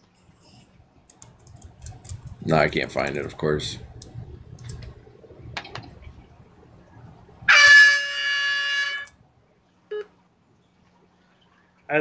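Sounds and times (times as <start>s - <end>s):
buzzy timeout horn: 7.5s - 9.2s.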